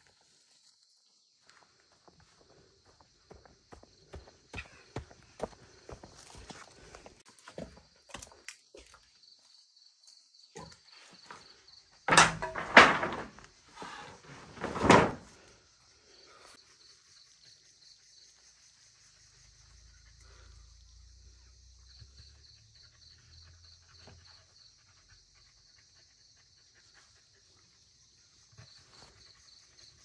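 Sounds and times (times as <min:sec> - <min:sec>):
loud thuds: 0:12.1 - 0:15.3.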